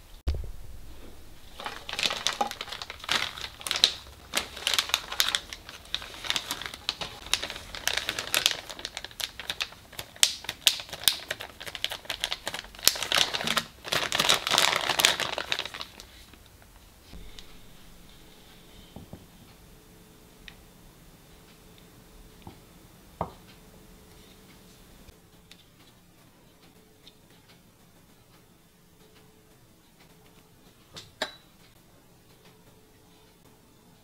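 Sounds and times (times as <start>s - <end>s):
plastic bag crinkling: 0.9s - 17.9s
dried mushroom slices rattling: 1.3s - 16.4s.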